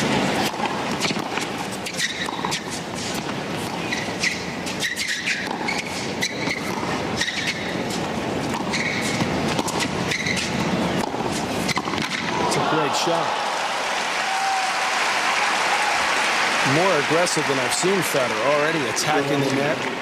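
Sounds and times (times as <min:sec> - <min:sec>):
racket hitting tennis ball: 0:00.0 - 0:12.6
sneaker squeaks on court: 0:01.0 - 0:12.3.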